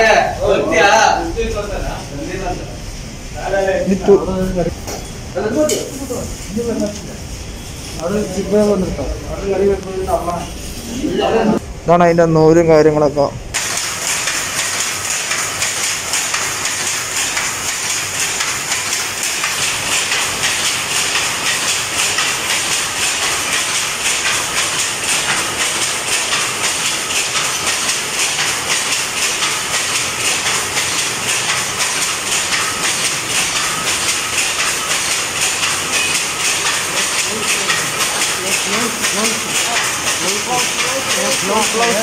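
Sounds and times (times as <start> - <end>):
power looms clattering: 13.6 - 42.0.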